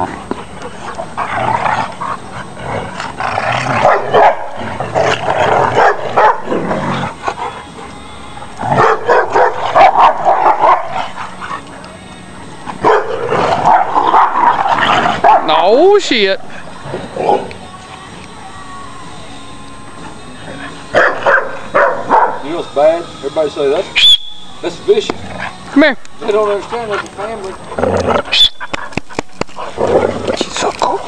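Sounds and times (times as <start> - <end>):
dogs growling and barking: 0.0 - 8.0, 8.6 - 12.0, 12.6 - 15.6, 16.4 - 17.7, 20.4 - 22.5, 25.1 - 31.0.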